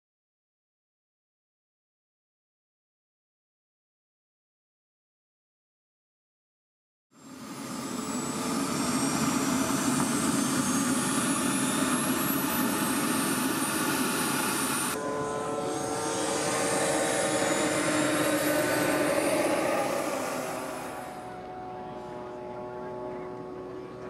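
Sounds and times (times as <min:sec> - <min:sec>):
model jet turbine whine: 0:07.2 - 0:24.0.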